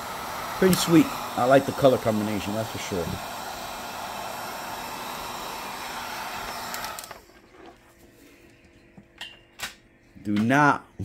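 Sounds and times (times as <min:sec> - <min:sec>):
heat gun blowing: 0:00.0 - 0:07.3.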